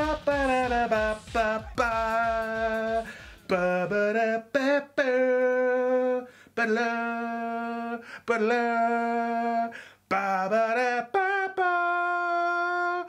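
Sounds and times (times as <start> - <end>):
low drum beat: 0.0 - 4.0
person singing long held notes: 0.0 - 13.0.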